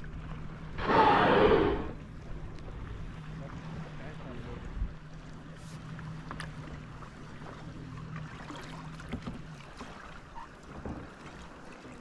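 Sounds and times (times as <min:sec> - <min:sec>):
wind on microphone: 0:00.8 - 0:02.7.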